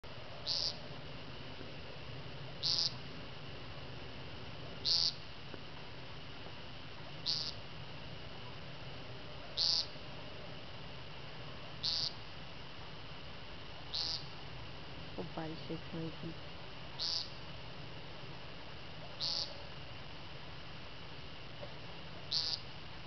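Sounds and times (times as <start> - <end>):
woodcock nasal peent call: 0.4 - 0.8, 2.6 - 3.0, 4.8 - 5.3, 7.2 - 7.6, 9.5 - 10.0, 11.8 - 12.2, 13.9 - 14.4, 16.9 - 17.4, 19.0 - 19.7, 22.2 - 22.7.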